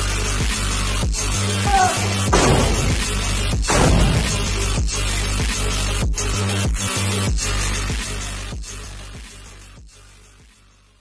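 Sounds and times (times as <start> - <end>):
dubstep electronic music: 0.0 - 10.6
loud crash-like hit: 2.3 - 4.8.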